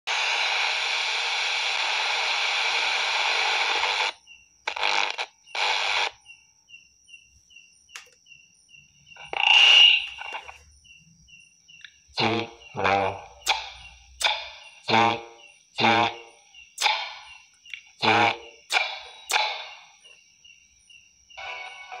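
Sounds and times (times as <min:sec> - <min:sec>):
radio static hissing: 0:00.0 - 0:06.2, 0:09.2 - 0:10.6, 0:12.2 - 0:20.0
loud burst of noise: 0:00.1 - 0:06.1, 0:18.0 - 0:19.9.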